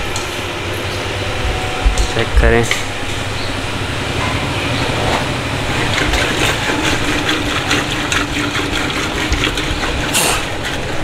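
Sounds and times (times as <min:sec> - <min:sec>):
steady hum: 0:00.0 - 0:11.0
liquid sloshing and splashing: 0:04.2 - 0:11.0.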